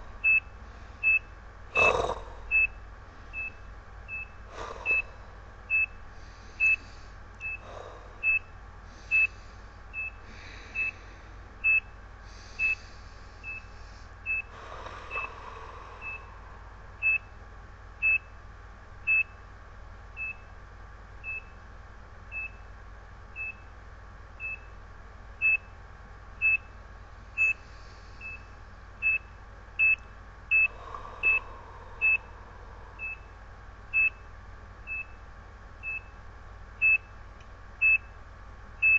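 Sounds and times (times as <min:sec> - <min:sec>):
heart monitor beeping: 0:00.0 - 0:06.0, 0:06.6 - 0:11.0, 0:11.6 - 0:12.0, 0:12.6 - 0:12.8, 0:13.4 - 0:16.4, 0:17.0 - 0:17.4, 0:18.0 - 0:18.3, 0:19.1 - 0:19.4, 0:20.2 - 0:20.4, 0:22.3 - 0:22.7, 0:23.4 - 0:23.7, 0:24.4 - 0:24.8, 0:25.4 - 0:25.8, 0:26.4 - 0:26.8, 0:27.4 - 0:27.6, 0:28.2 - 0:34.3, 0:34.9 - 0:35.2, 0:35.8 - 0:36.2, 0:36.8 - 0:37.2, 0:37.8 - 0:38.2.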